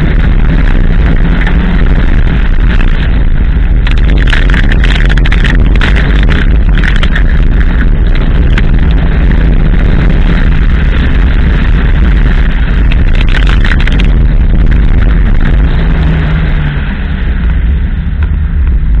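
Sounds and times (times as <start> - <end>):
tyres on gravel roar: 0.0 - 19.0
wind buffeting: 0.0 - 19.0
stones clattering against car body: 3.8 - 8.7.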